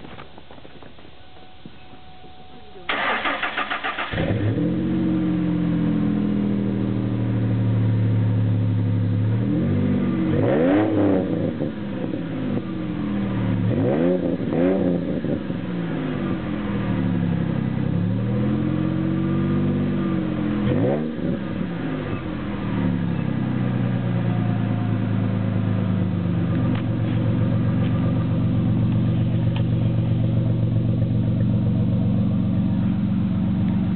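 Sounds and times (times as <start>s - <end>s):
car engine idling: 0.0s - 9.4s, 11.3s - 33.9s
car starter cranking: 2.9s - 4.5s
engine revving in short blips: 2.9s - 7.1s.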